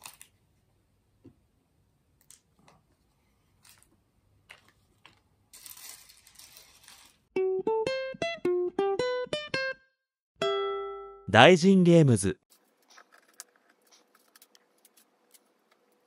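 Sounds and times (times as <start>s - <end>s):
plucked-string music: 7.4s - 11.3s.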